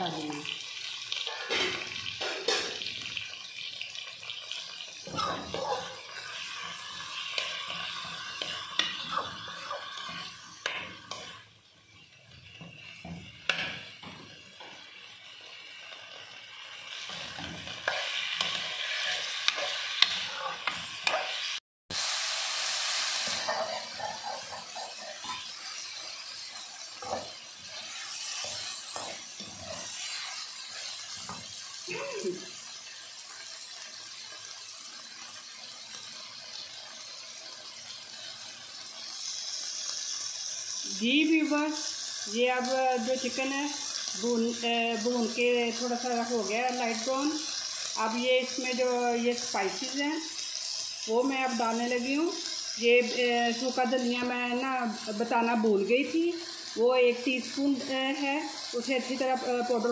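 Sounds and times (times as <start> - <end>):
chicken sizzling in oil: 0.0 - 59.9
metal spoon scraping a pan: 1.1 - 3.0, 4.4 - 15.1, 15.8 - 21.6, 22.6 - 31.6.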